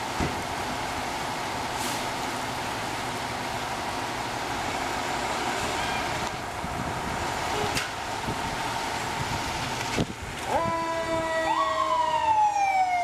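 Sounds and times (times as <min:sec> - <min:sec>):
fire truck engines running: 0:00.0 - 0:13.0.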